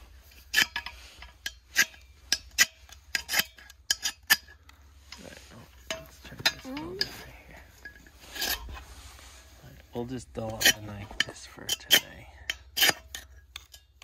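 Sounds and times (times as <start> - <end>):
knife rasping on ferro rod: 8.2 - 9.5.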